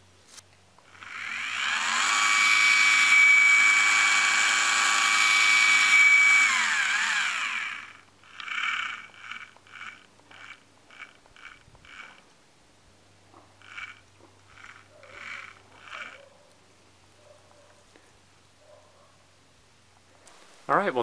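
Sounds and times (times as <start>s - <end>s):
focus motor whining: 0.8s - 12.3s, 13.4s - 16.6s.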